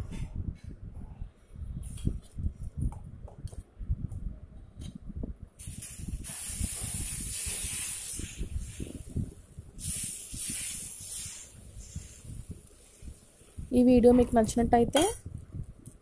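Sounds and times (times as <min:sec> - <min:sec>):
batter sizzling on hot pan: 0:05.6 - 0:13.3.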